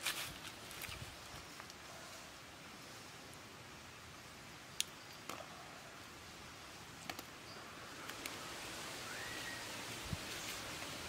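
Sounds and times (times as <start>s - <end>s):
faint steady hiss: 0.0s - 11.0s
short rising whistle: 9.0s - 9.7s.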